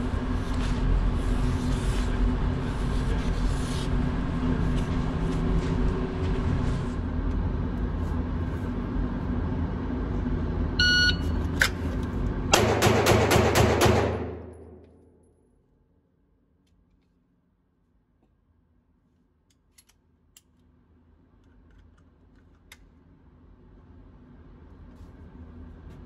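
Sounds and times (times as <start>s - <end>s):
short electronic beep: 10.8s - 11.4s.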